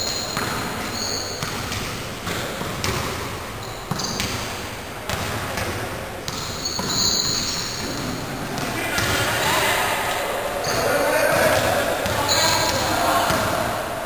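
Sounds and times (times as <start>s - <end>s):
basketball bouncing on court: 0.0s - 9.6s, 10.6s - 13.7s
steady background hiss: 0.0s - 14.0s.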